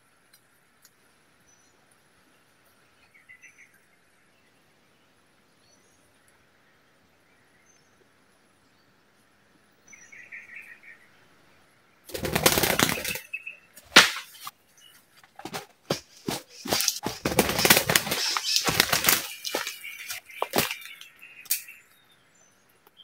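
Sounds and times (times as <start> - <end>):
doves flapping wings: 12.1 - 14.5, 15.2 - 21.6.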